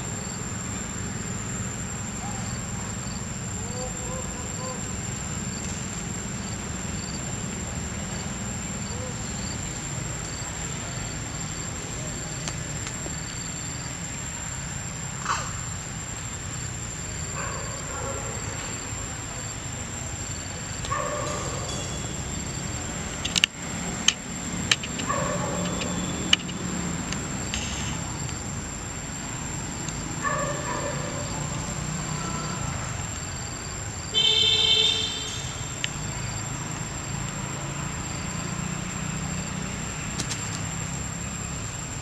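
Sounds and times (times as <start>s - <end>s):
sharp clicks: 23.2s - 28.4s, 40.2s - 40.6s
horn-like toot: 34.2s - 35.7s.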